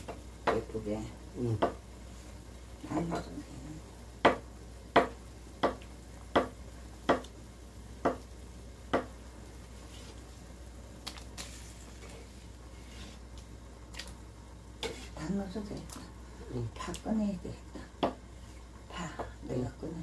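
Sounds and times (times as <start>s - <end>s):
knife chopping on wooden board: 4.2s - 4.4s, 5.0s - 7.3s.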